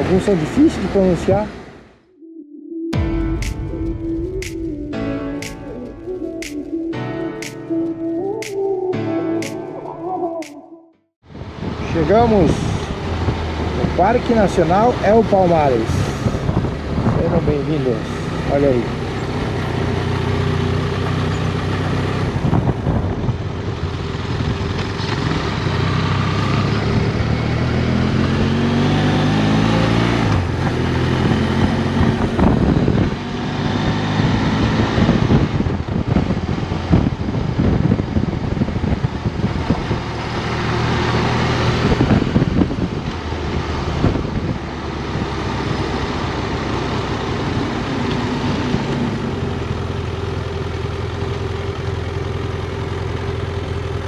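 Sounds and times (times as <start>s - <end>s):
wind noise: 11.3s - 13.7s, 15.7s - 17.6s, 22.2s - 24.9s, 30.4s - 45.4s
motorcycle engine revving: 11.9s - 54.0s.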